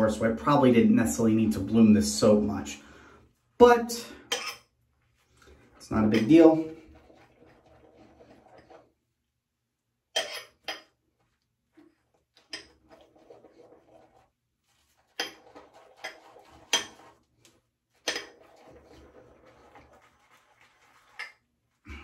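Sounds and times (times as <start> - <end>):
wet swishing of shaving brush: 5.0 - 9.0, 11.2 - 21.8.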